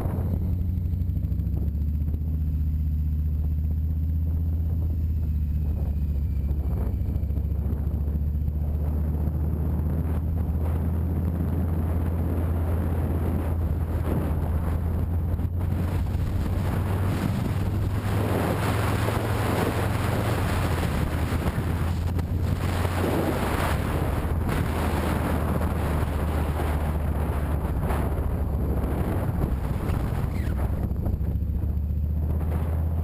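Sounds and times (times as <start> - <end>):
wind rushing over microphone: 0.0 - 0.7, 4.2 - 33.0
motorcycle engine running: 0.0 - 33.0.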